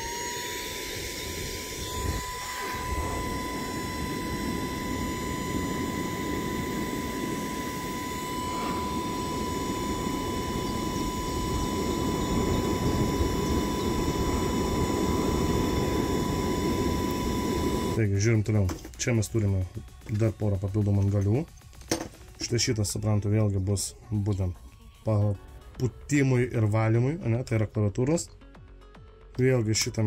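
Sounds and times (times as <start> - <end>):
handheld vacuum motor whine: 0.0 - 18.0.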